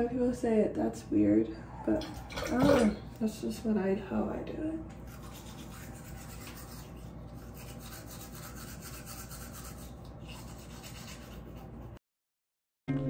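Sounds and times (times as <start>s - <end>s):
toothbrush scrubbing teeth: 5.0s - 12.0s.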